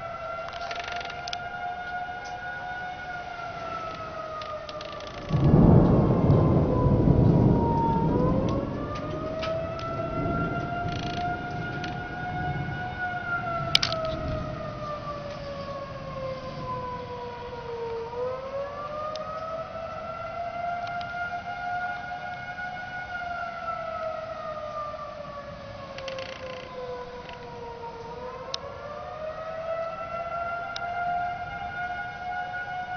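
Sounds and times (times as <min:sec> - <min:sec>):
tornado siren wailing: 0:00.0 - 0:32.9
low rumble: 0:05.2 - 0:16.6.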